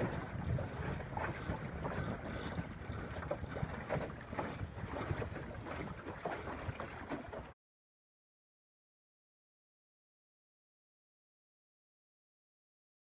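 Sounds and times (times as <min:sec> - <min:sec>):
wind buffeting microphone: 0:00.0 - 0:07.1
water slapping against hull: 0:00.0 - 0:07.6.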